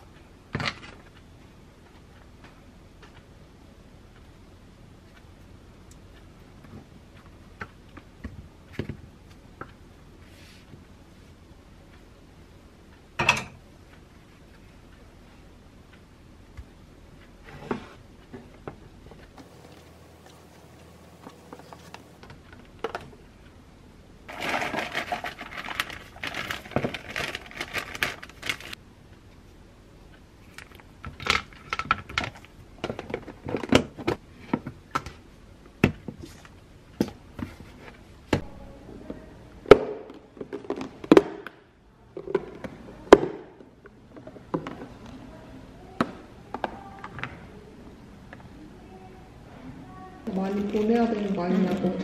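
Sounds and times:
plastic containers rustling: 19.4 - 23.1, 24.3 - 28.8, 50.3 - 52.0.

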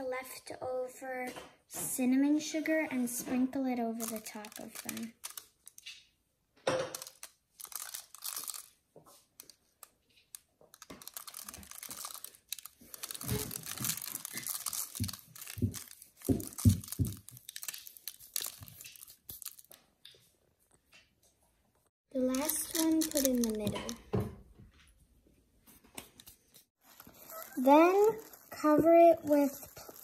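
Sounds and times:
parchment paper crinkling: 2.6 - 6.0, 6.8 - 20.3, 22.2 - 24.2, 26.0 - 30.0.

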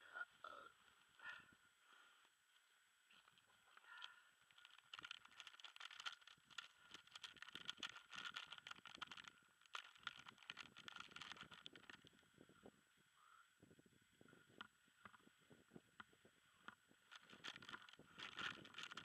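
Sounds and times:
gear crackling and rustling: 3.1 - 12.2, 17.0 - 19.0.

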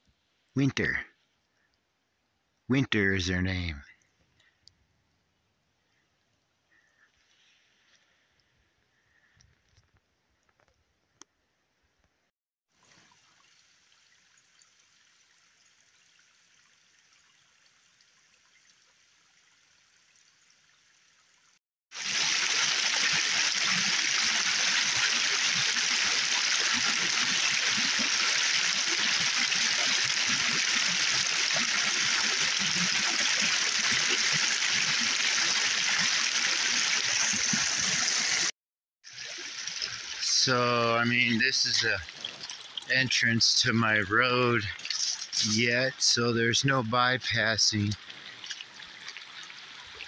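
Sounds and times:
stream rushing over rocks: 22.0 - 38.5.

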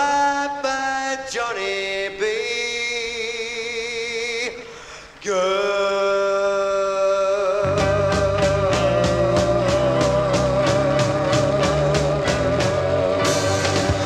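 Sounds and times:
long held sung notes: 5.2 - 14.0
sustained band chords: 7.7 - 14.0.

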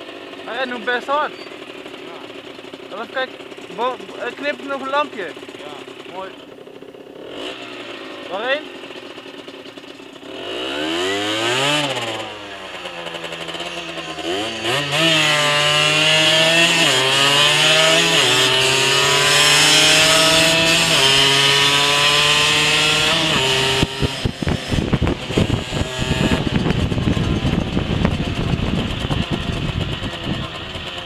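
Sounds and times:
moped engine accelerating: 0.0 - 31.0
wind buffeting microphone: 23.1 - 30.9.

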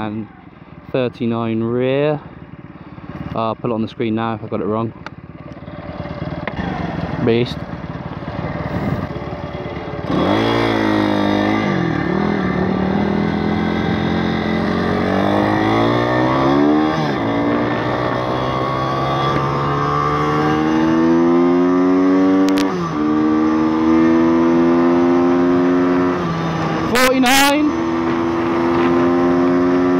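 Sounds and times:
motorcycle engine accelerating: 0.0 - 29.9.

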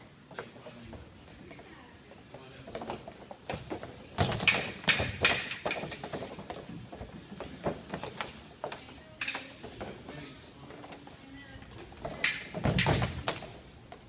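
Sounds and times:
sneaker squeaks: 2.6 - 6.8, 7.7 - 9.8, 12.8 - 13.7.

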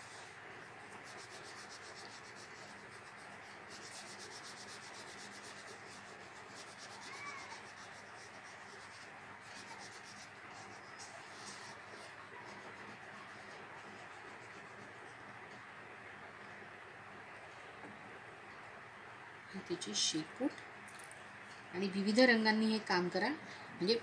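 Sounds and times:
crayon rubbing on paper: 0.9 - 15.0.

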